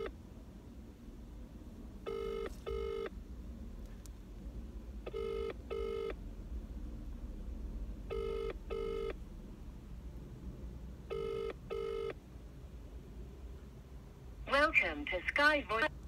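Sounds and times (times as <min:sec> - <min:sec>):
phone ringback tone: 0:02.1 - 0:03.1, 0:05.1 - 0:06.2, 0:08.1 - 0:09.2, 0:11.1 - 0:12.2.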